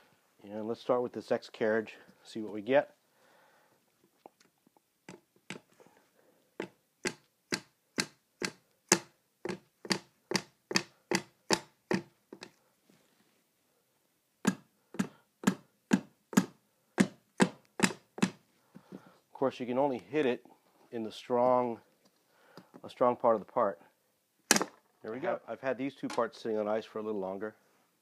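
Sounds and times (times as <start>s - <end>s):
hammer tapping plastic on glass: 6.6s - 12.5s, 14.4s - 18.4s.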